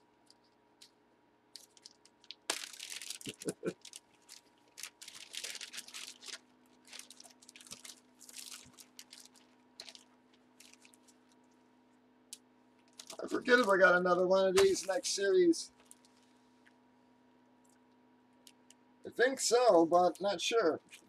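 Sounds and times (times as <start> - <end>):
plastic bag crinkling: 1.5 - 11.5, 12.8 - 14.0, 14.6 - 16.2.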